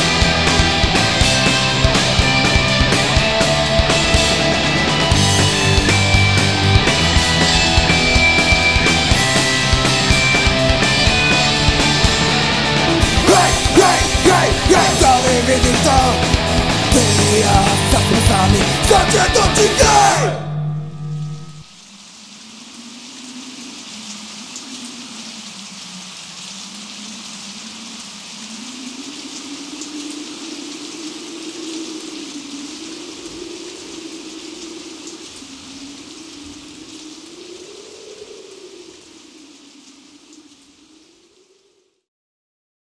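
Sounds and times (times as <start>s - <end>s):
rain-like hiss: 0.0s - 19.3s, 21.2s - 42.1s
low wavering tone: 20.4s - 21.8s.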